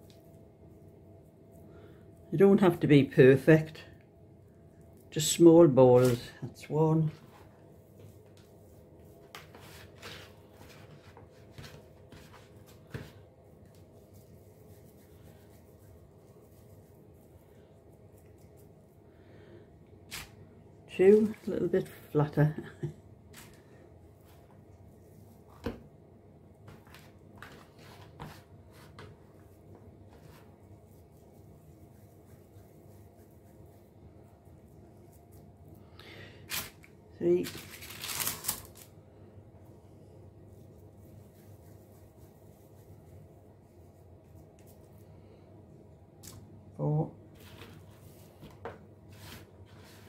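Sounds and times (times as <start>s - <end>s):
hands rolling dough in a bowl: 4.8s - 19.0s, 23.3s - 35.8s, 40.3s - 45.1s.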